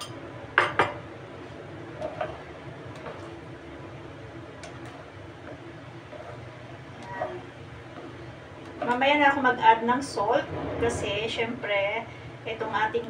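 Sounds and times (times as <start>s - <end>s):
spatula stirring thick sauce: 1.4s - 9.2s.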